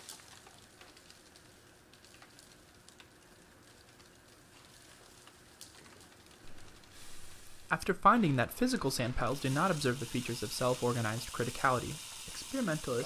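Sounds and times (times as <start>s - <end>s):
sand grains trickling: 6.5s - 13.0s.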